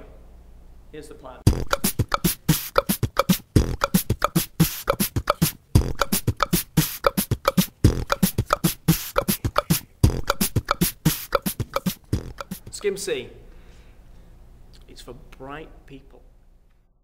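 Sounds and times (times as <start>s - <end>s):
beatbox vocal percussion: 1.4s - 12.9s.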